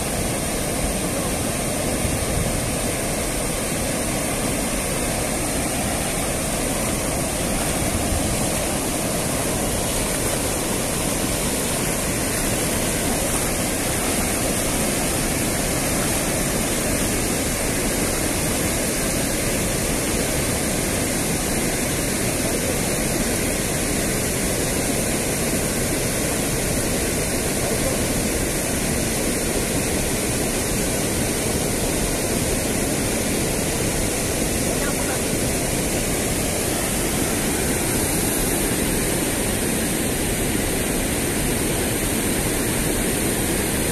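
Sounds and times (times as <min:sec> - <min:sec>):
water rushing over weir: 0:00.0 - 0:43.9.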